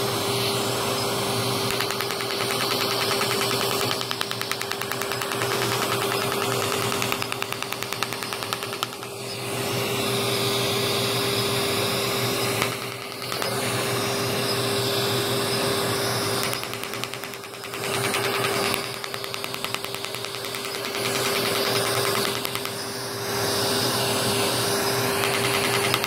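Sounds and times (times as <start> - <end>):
machine hum with constant tone: 0.0 - 26.0
laser clicking pulses: 1.6 - 9.4, 12.6 - 13.6, 16.4 - 22.9, 25.0 - 26.0.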